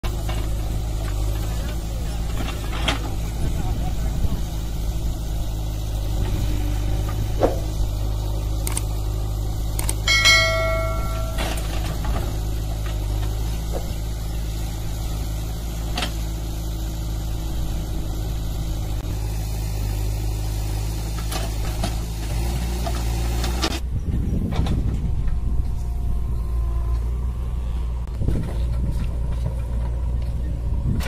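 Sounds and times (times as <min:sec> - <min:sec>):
diesel engine drone: 0:00.0 - 0:31.0
metallic ring: 0:10.1 - 0:12.0.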